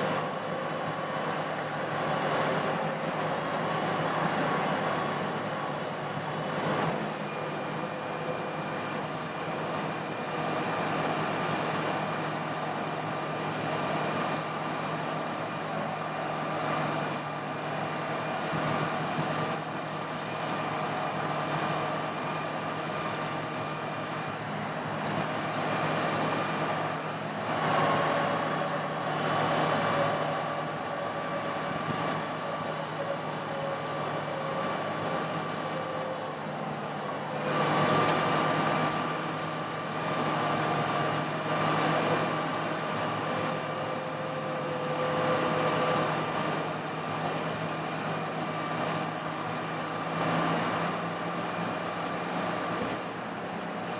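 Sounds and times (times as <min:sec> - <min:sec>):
truck idling: 0:00.0 - 0:53.9
hydraulic boom whine: 0:16.0 - 0:47.6.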